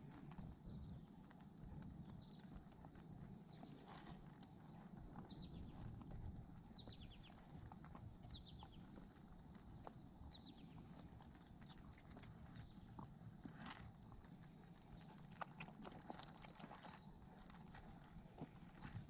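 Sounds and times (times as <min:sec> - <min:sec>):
puppies crunching dry food: 0:10.6 - 0:19.0.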